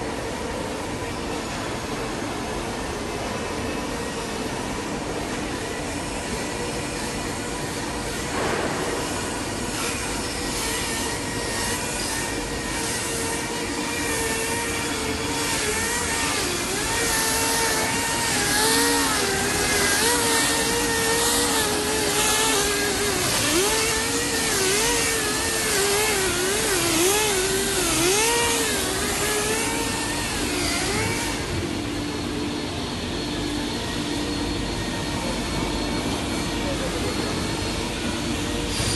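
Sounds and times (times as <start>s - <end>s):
low machine hum: 0.0s - 38.9s
wavering machine whine: 0.0s - 38.9s
mill machinery rushing hiss: 8.2s - 12.5s.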